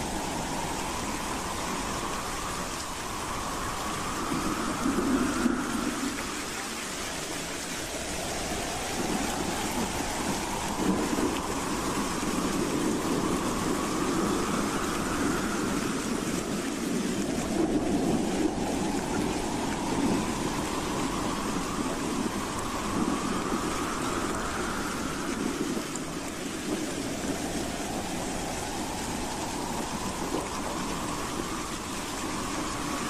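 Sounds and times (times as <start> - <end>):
howling wind: 0.0 - 33.0.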